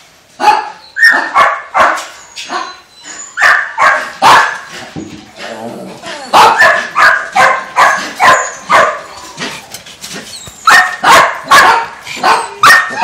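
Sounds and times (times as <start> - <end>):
dogs barking: 0.4 - 2.8, 3.4 - 4.7, 6.3 - 9.2, 10.6 - 13.0.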